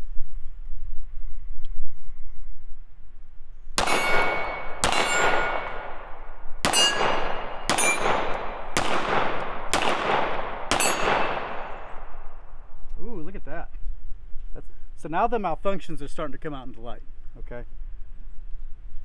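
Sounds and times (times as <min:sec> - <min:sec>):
steel target clanging: 0:03.8 - 0:05.8, 0:06.6 - 0:08.4, 0:10.7 - 0:11.5
pistol shots: 0:03.8 - 0:12.2.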